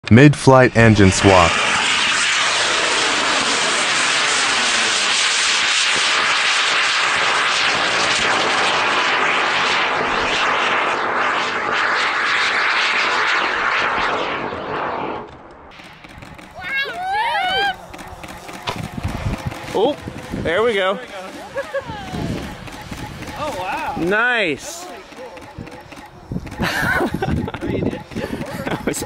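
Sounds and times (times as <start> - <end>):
rocket motor rushing roar: 0.7 - 29.0.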